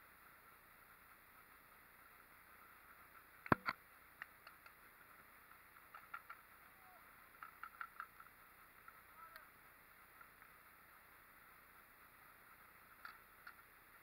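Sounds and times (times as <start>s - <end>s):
faint clicks and pops: 2.9s - 10.7s, 12.5s - 14.0s.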